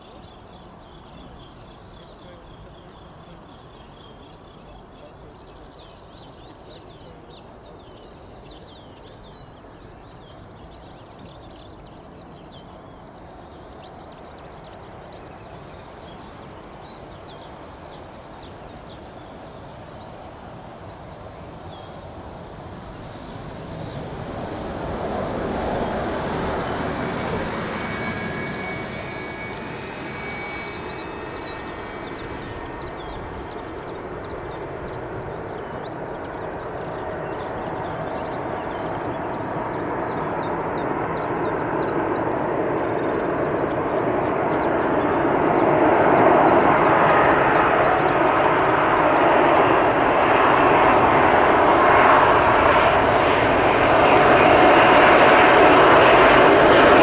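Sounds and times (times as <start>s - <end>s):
faint jet whine: 0.0s - 57.0s
jet engines rumbling: 0.0s - 57.0s
small birds chirping: 0.0s - 57.0s.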